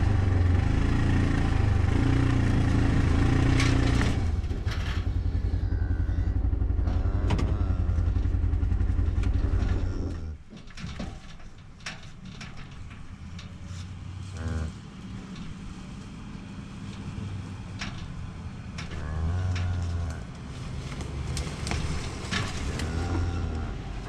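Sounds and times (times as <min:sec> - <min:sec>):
vehicle engine revving: 0:00.0 - 0:10.4, 0:13.6 - 0:24.0
metal cage clicking and rattling: 0:06.6 - 0:23.6.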